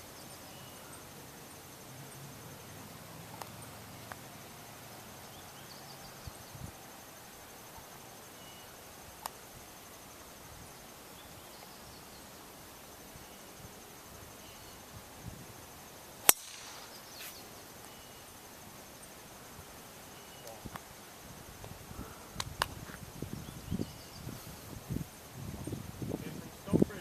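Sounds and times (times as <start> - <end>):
faint bird chirps: 0.0 - 2.2, 5.2 - 6.8, 7.8 - 8.8, 14.3 - 15.0, 16.3 - 18.4, 20.0 - 20.7, 23.3 - 24.8
faint insect trill: 0.0 - 27.0
golf ball struck crack: 16.2 - 17.1.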